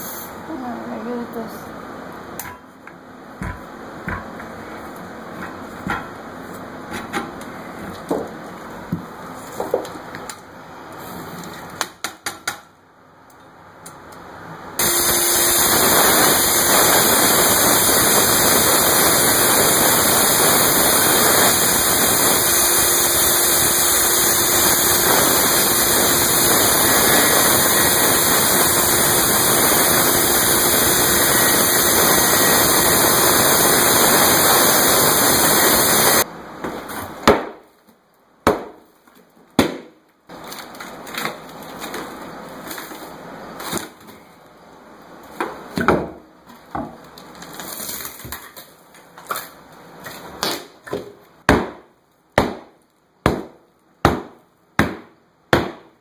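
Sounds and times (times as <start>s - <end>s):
circular saw cutting wood: 14.8s - 36.2s.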